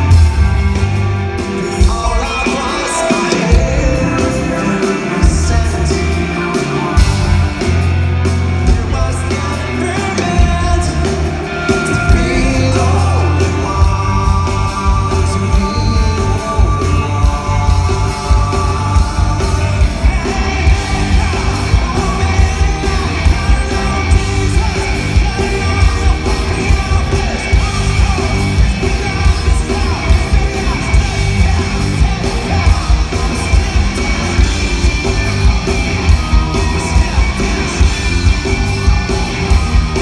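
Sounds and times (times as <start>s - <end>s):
electric guitar: 0.0s - 40.0s
steady drum beat: 0.0s - 40.0s
man singing into a microphone: 1.7s - 7.0s, 8.6s - 35.2s.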